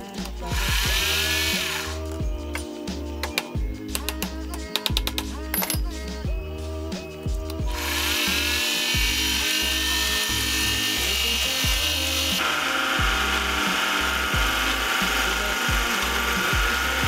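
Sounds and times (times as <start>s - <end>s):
music with thumping beat: 0.0s - 12.4s, 13.0s - 17.0s
lathe cutting plastic hiss: 0.4s - 2.0s, 7.7s - 17.0s.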